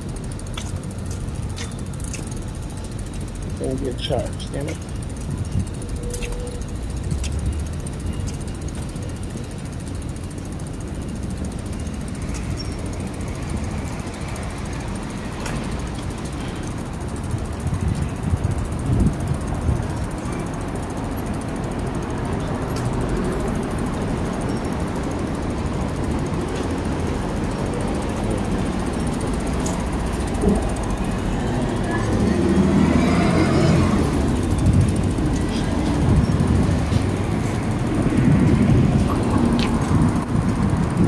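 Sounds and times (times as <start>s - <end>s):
bicycle tyres rumbling: 0.0s - 41.0s
passing traffic: 0.0s - 41.0s
wind on microphone: 17.7s - 19.9s, 34.4s - 41.0s.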